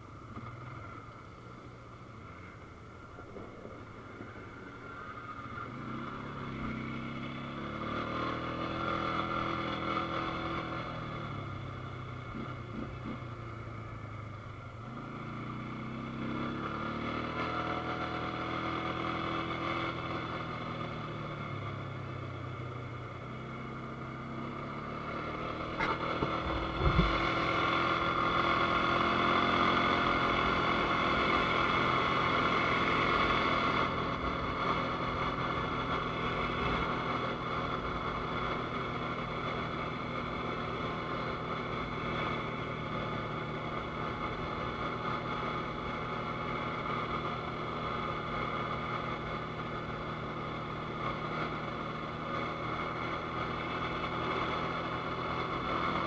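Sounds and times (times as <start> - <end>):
atv engine running: 5.4 - 56.0
low thump: 26.2 - 27.2.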